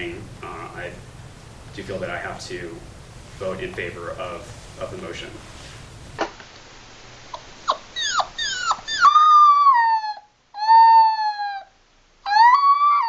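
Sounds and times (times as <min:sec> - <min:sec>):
puppy yelping and howling: 0:07.4 - 0:13.0.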